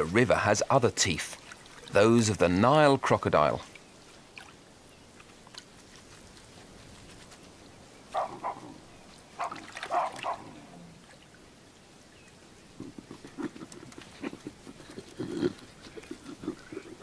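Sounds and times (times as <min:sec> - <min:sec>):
animal calls: 0:08.1 - 0:11.1, 0:12.7 - 0:17.0.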